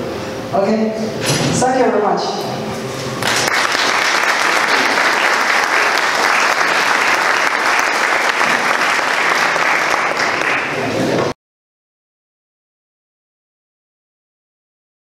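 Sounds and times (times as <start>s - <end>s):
audience applauding: 3.2s - 11.2s.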